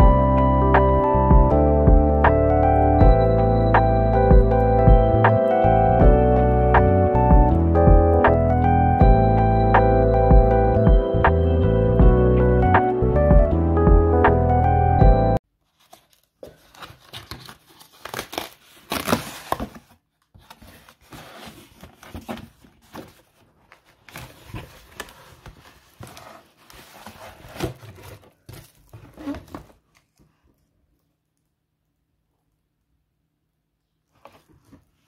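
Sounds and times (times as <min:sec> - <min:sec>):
packaging crinkling and tearing: 0:15.6 - 0:30.2.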